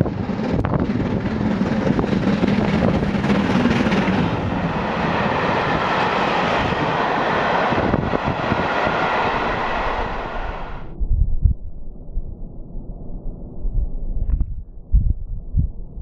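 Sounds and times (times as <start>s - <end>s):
train coaches rolling on rails: 0.0s - 10.8s
steam train passing at speed: 0.0s - 10.9s.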